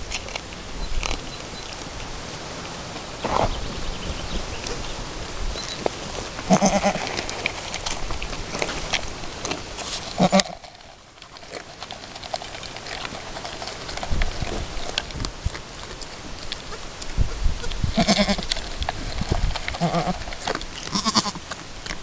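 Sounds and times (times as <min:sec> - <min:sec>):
goat bleating: 0:06.4 - 0:07.2, 0:10.2 - 0:10.6, 0:17.6 - 0:18.6, 0:19.7 - 0:21.4.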